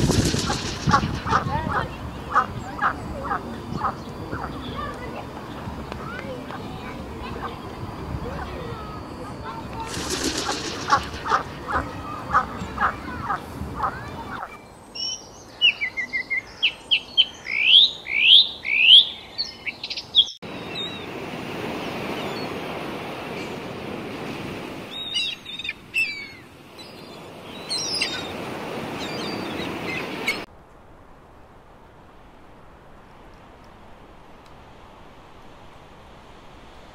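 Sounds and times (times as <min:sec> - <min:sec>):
steady rushing noise: 0:00.0 - 0:14.4
duck quacking: 0:00.4 - 0:04.6, 0:09.5 - 0:14.6
bird singing whistled notes: 0:14.6 - 0:21.0.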